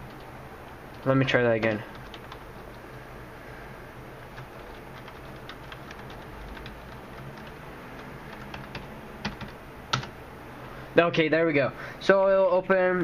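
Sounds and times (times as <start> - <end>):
keyboard typing clicks: 0.0 - 2.8, 4.4 - 10.1.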